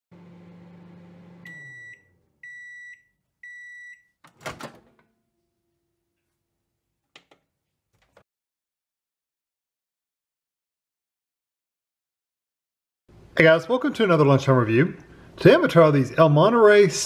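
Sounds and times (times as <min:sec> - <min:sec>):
microwave hum winding down: 0:00.1 - 0:03.8
microwave high beeps: 0:01.4 - 0:04.2
microwave door latch clunk: 0:04.3 - 0:05.0.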